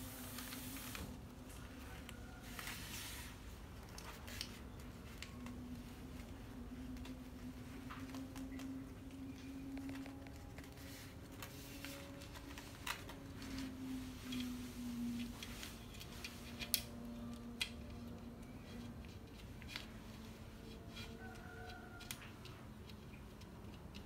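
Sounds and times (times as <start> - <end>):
paper banknotes rustling: 0.2 - 16.2.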